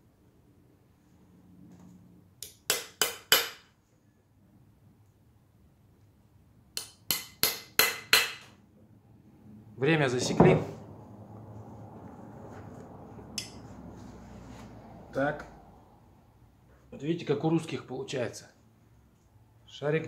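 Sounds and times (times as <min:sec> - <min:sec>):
hammer striking workpiece: 0:02.4 - 0:03.7, 0:06.8 - 0:08.6.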